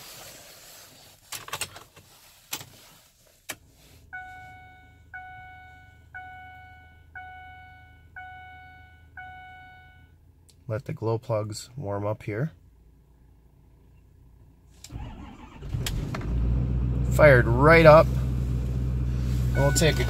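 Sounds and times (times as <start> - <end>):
dashboard warning chime: 4.1 - 10.1, 19.5 - 20.0.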